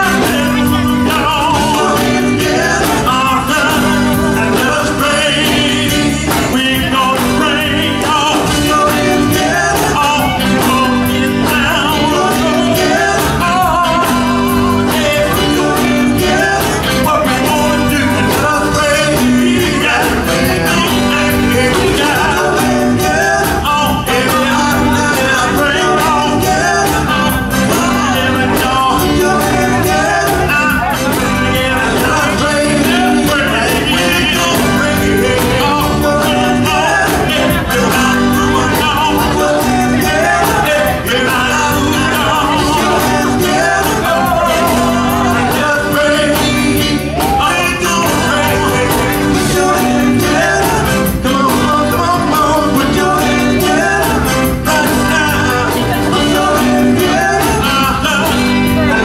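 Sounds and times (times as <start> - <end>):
male vocal group singing: 0.0 - 59.0
soul band playing: 0.0 - 59.0.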